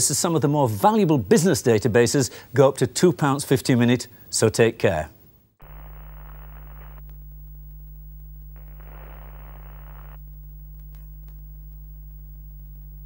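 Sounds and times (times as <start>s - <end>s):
low electrical hum: 4.1s - 13.0s
static hiss bursts: 5.2s - 13.0s.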